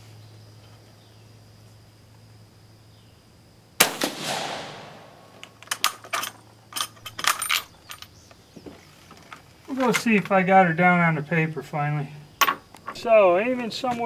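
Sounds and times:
rifle shot with echo: 0:03.8 - 0:05.6.

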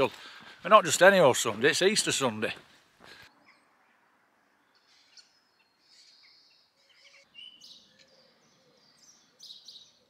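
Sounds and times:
birds chirping and whistling: 0:04.6 - 0:10.0.

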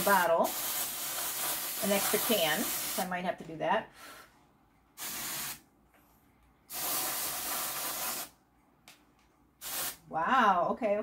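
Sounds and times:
aerosol spray can spraying: 0:00.0 - 0:03.1, 0:05.0 - 0:05.6, 0:06.7 - 0:08.4, 0:09.6 - 0:10.1.

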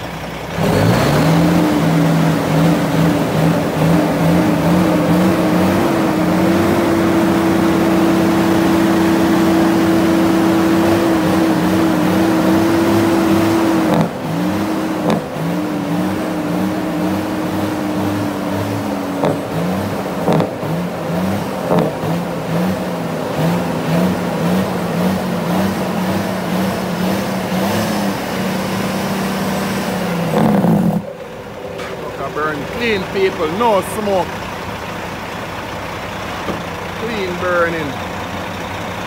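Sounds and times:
diesel truck engine revving: 0:00.0 - 0:39.0.

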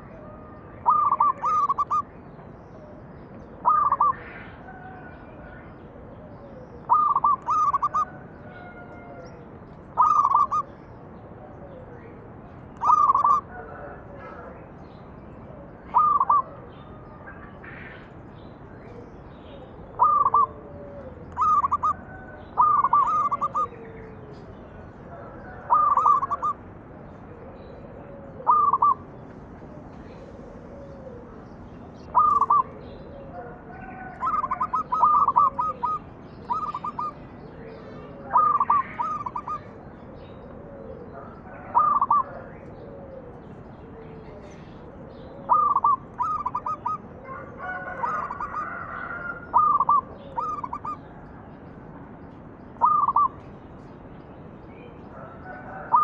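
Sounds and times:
faint low bird calls: 0:00.0 - 0:10.8, 0:15.6 - 0:26.6, 0:27.2 - 0:51.0, 0:52.8 - 0:54.0
dove singing staccato notes: 0:00.8 - 0:02.6, 0:06.8 - 0:08.1, 0:09.9 - 0:10.7, 0:12.8 - 0:13.5, 0:15.9 - 0:16.5, 0:19.9 - 0:23.7, 0:25.6 - 0:26.6, 0:28.3 - 0:29.0, 0:30.2 - 0:33.4, 0:34.1 - 0:43.4, 0:44.5 - 0:51.0, 0:52.8 - 0:53.4.

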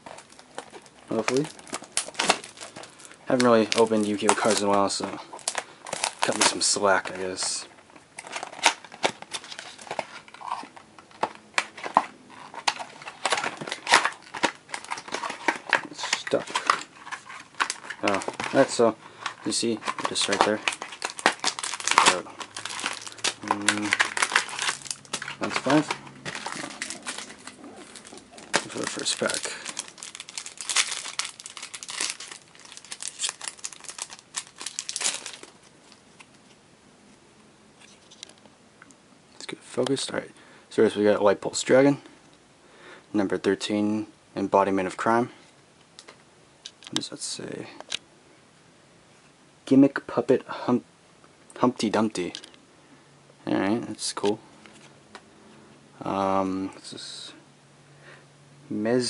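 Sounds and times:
foil wrapper crinkling and tearing: 0:00.0 - 0:07.6, 0:08.2 - 0:36.3.

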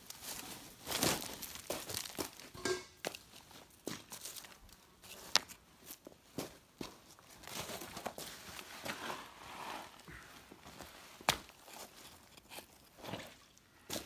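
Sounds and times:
dry leaves rustling: 0:00.0 - 0:05.3
stones crunching on gravel: 0:00.0 - 0:09.0.

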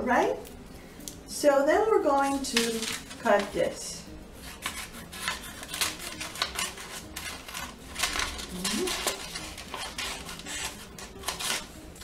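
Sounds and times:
scissors snipping paper: 0:02.2 - 0:03.5, 0:04.5 - 0:12.0.

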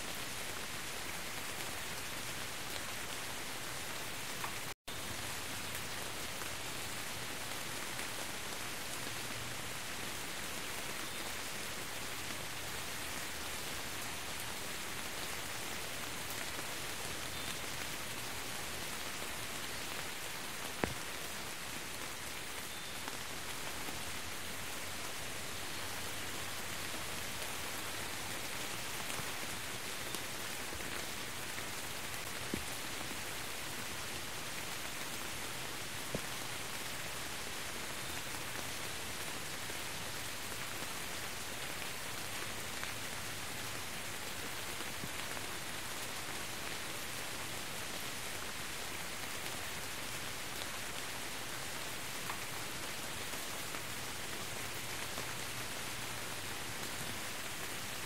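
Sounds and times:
steady rain on wet ground: 0:00.0 - 0:58.0.

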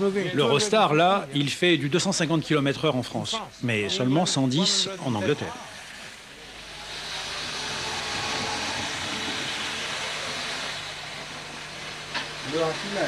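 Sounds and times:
low motor hum: 0:05.8 - 0:13.0
model train wheels hissing on rail: 0:05.8 - 0:13.0.

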